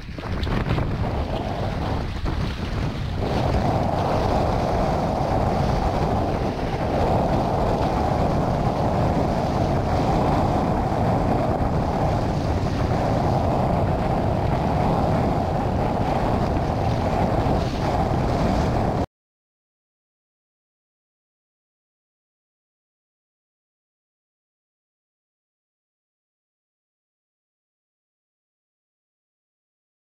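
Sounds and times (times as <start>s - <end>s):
surf splashing: 0.0s - 19.0s
storm wind buffeting microphone: 0.0s - 19.1s.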